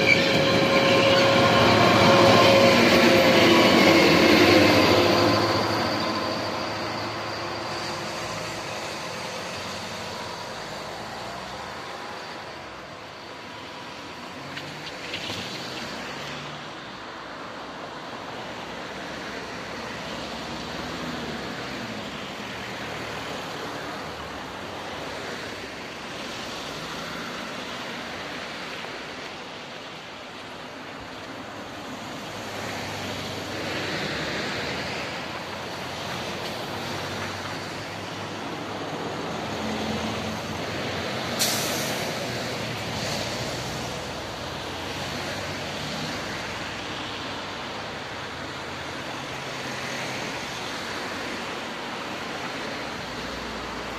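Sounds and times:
road traffic passing: 0.0s - 53.9s
sharp hiss: 41.2s - 43.9s.

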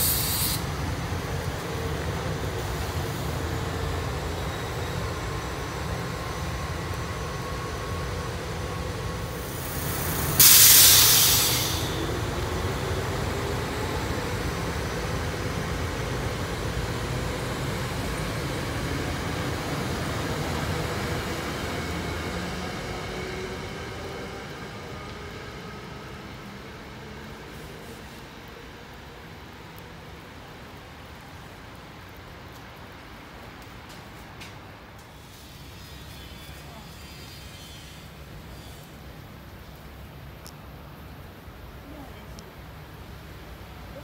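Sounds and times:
compressed air hiss: 0.0s - 0.7s, 9.3s - 12.1s
train rumbling on rails: 0.0s - 44.0s.

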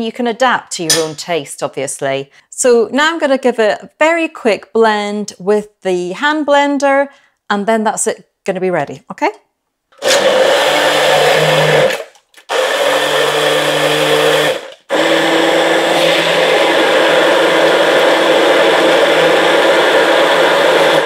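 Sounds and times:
electric hand blender running: 10.0s - 21.0s.

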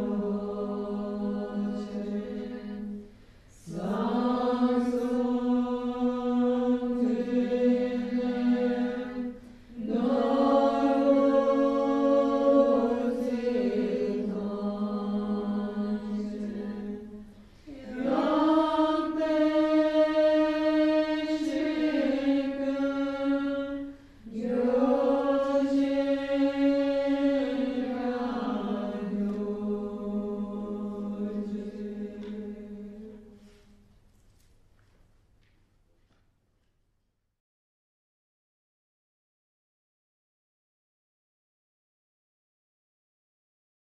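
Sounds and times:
women chanting a prayer: 0.0s - 33.4s.

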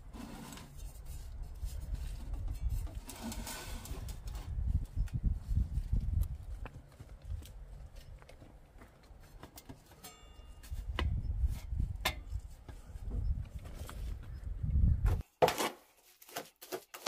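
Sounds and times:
metal pipe clicks and knocks: 12.0s - 12.4s.

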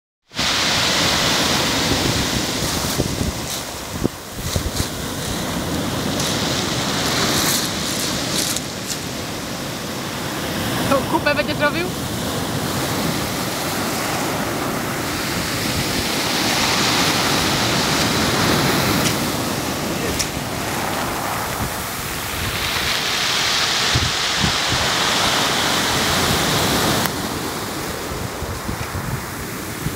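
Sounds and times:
waves breaking on pebbles: 0.3s - 29.9s
backwash rattling through stones: 0.8s - 9.3s.

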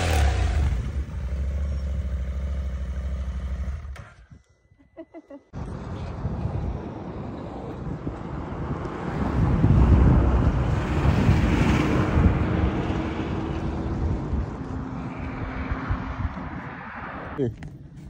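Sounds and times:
wind buffeting microphone: 5.6s - 18.0s.

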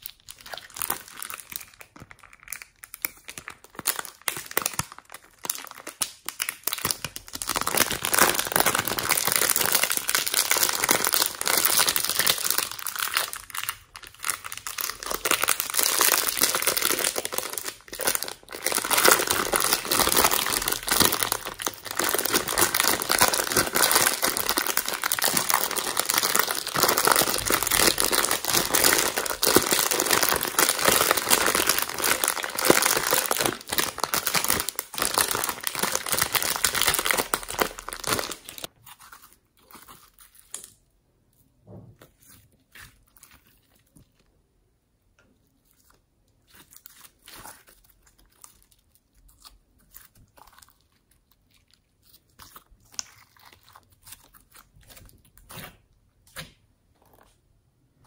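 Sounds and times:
plastic packet crinkling: 0.0s - 38.7s
hands squeezing slime: 0.0s - 44.3s, 45.0s - 57.5s.

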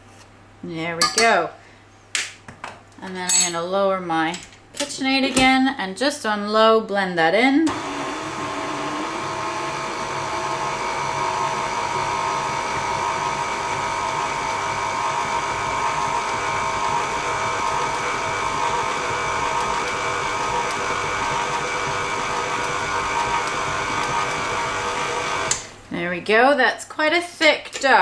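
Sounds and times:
stand mixer motor whine: 7.7s - 25.7s.

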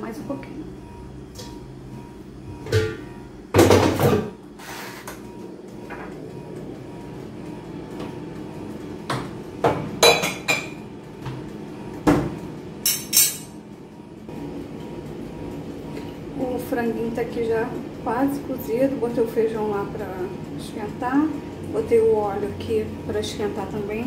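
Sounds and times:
air fryer humming: 0.0s - 24.0s
air fryer basket clunk: 2.6s - 4.4s.

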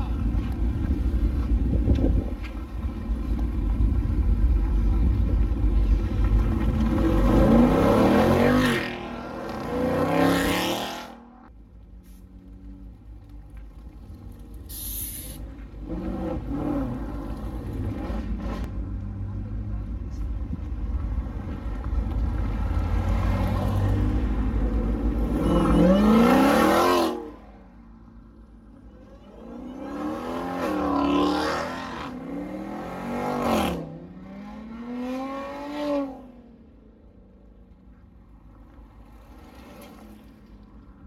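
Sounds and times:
low engine rumble: 0.0s - 7.7s, 18.6s - 25.8s
car engines revving: 0.0s - 11.5s, 15.4s - 36.8s.

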